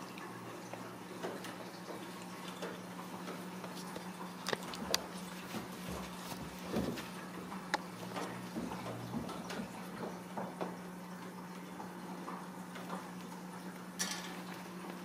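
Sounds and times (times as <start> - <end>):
cats scuffling on fabric: 4.6 - 9.7.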